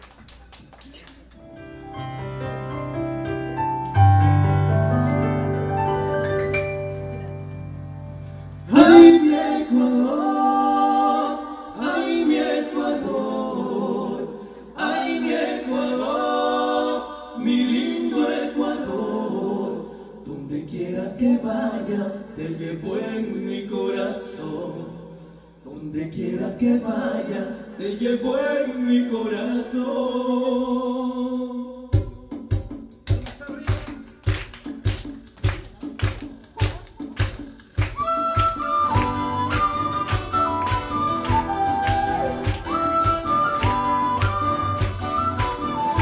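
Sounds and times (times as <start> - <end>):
held keyboard chords: 1.4 - 8.9
voices singing in harmony: 8.7 - 31.9, 38.0 - 46.0.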